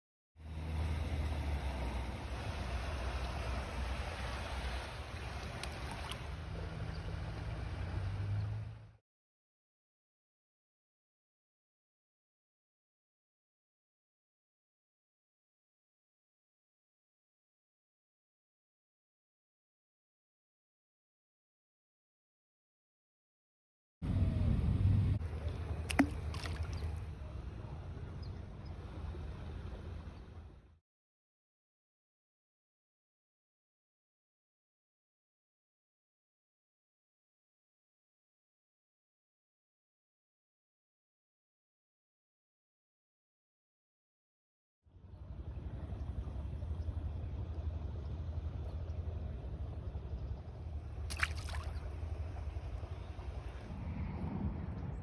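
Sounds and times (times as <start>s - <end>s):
low rumble under a hiss: 24.0s - 30.7s, 44.9s - 55.0s.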